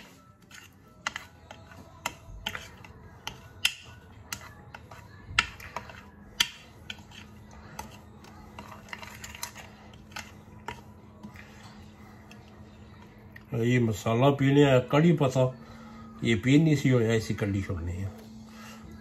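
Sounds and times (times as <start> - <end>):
teaspoon scraping ceramic plate: 0.0 - 12.6.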